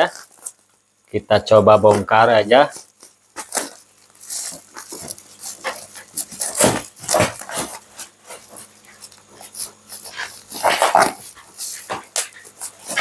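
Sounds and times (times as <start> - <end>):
plastic crinkling and rustling: 0.0 - 13.0
scissors cutting plastic: 2.7 - 13.0.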